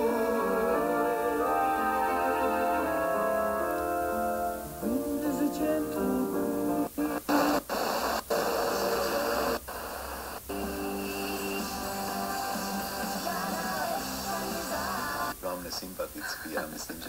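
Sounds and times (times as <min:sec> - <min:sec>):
music from radio speaker: 0:00.0 - 0:15.4
radio hiss: 0:04.1 - 0:17.0.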